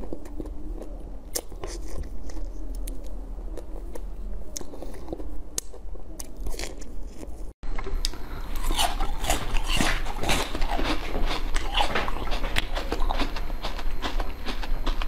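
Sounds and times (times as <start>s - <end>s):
chewing strawberries: 0.0s - 15.0s
crunching frozen treat: 0.0s - 15.0s.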